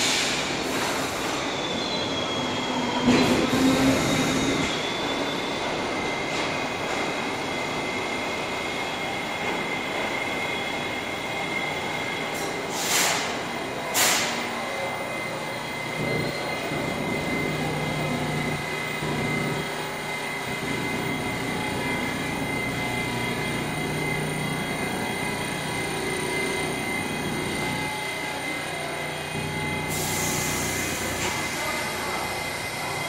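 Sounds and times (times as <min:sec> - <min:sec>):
hiss: 0:00.0 - 0:01.5, 0:12.3 - 0:14.6, 0:29.9 - 0:32.2
high-pitched whine: 0:00.0 - 0:33.0
subway train idling hum: 0:00.0 - 0:33.0.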